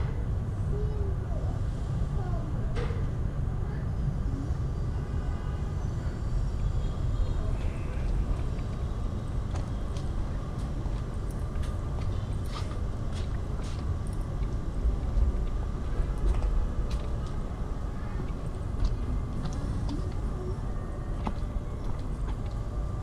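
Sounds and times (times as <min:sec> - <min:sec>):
distant traffic rumble: 0:00.0 - 0:23.0.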